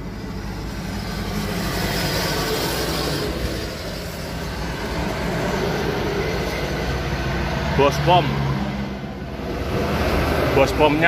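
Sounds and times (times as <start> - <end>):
engine rumble: 0.0 - 11.0.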